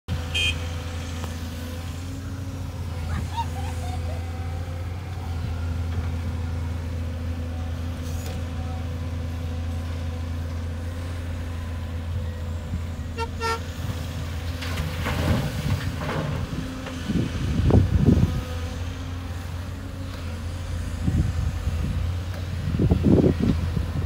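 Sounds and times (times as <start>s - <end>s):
heavy diesel engines running: 0.1s - 24.0s
vehicle horn toots: 0.3s - 0.7s, 13.1s - 13.8s.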